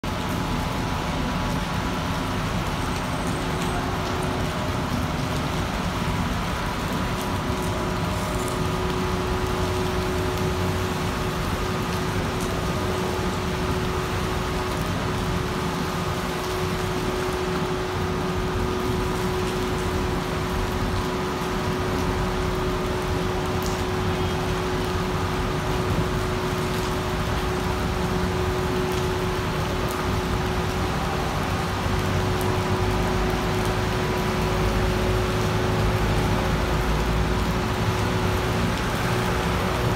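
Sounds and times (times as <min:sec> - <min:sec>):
heavy rain on paving: 0:00.0 - 0:39.9
traffic on wet road: 0:00.0 - 0:39.9.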